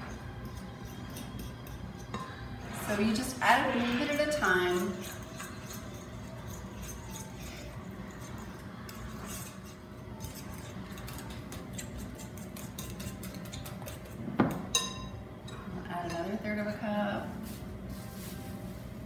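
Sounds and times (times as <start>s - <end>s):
fork clinking in glass bowl: 0.0s - 2.4s, 4.7s - 16.4s.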